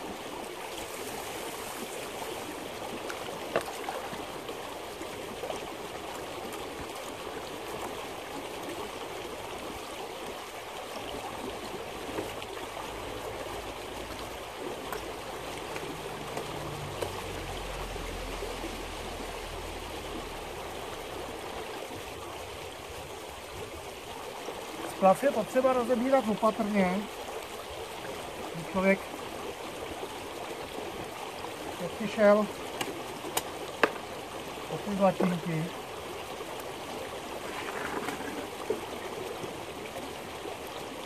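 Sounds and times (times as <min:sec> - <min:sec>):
creek running over stones: 0:00.0 - 0:41.0
water poured into plastic bucket: 0:37.4 - 0:38.8.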